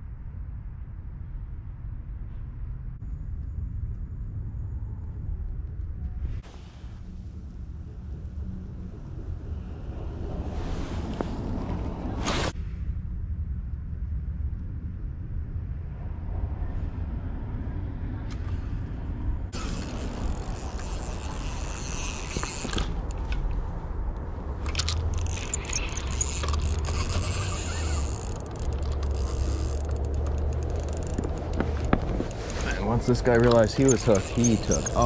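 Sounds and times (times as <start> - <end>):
wind rumble on microphone: 0.0 - 35.0
fishing reel clicking and ratcheting: 19.6 - 23.2, 24.6 - 32.6, 33.4 - 35.0.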